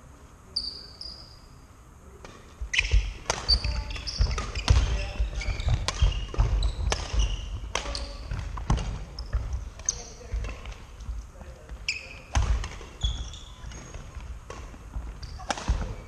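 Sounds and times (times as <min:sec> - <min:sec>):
racket hitting shuttlecock: 0:02.2 - 0:11.0, 0:12.2 - 0:16.0
shoes squeaking: 0:02.3 - 0:16.0.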